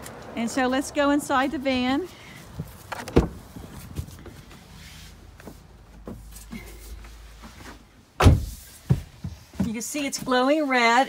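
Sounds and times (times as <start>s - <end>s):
van door shutting thud: 3.0s - 3.4s, 8.2s - 9.0s.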